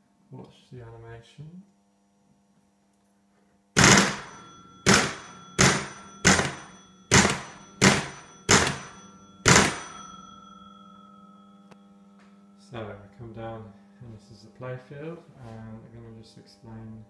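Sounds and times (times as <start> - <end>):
pinball score bell ringing: 3.8 - 13.2.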